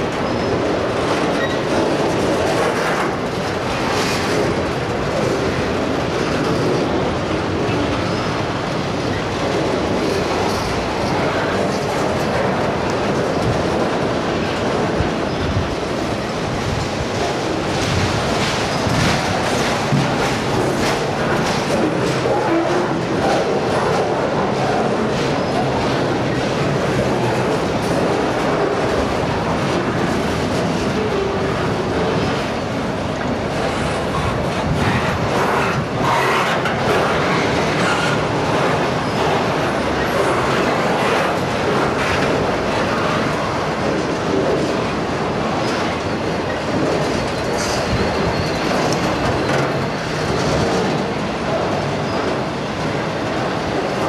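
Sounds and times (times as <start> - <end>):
freight train wheels rumbling on rails: 0.0 - 54.0.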